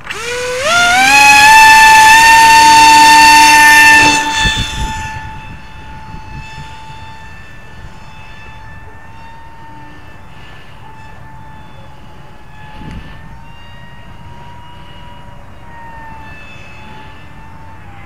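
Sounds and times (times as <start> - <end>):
electric motor propeller whine: 0.0 - 18.0
wind rumble on microphone: 1.3 - 18.0.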